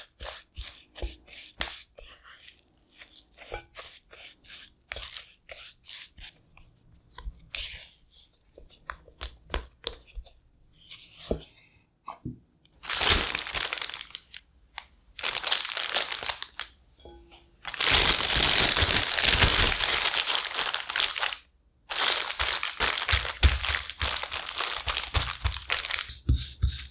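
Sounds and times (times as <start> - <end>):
spatula scraping dough in glass bowl: 0.0 - 11.7
plastic bag rustling: 12.8 - 14.4, 15.2 - 16.7, 17.6 - 26.1.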